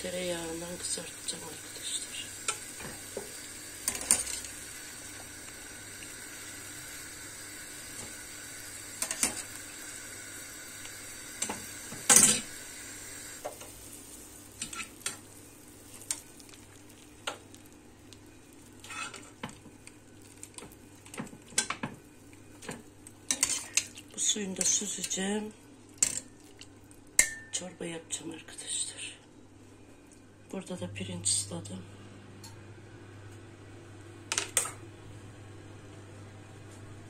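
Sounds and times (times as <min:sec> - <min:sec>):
chicken sizzling in frying pan: 0:00.1 - 0:25.1
utensil clanking on steel pot: 0:22.6 - 0:23.9, 0:27.2 - 0:27.6.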